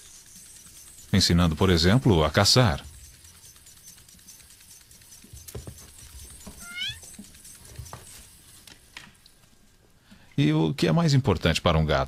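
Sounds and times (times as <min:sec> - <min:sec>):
kitten mewing: 0:06.6 - 0:07.0.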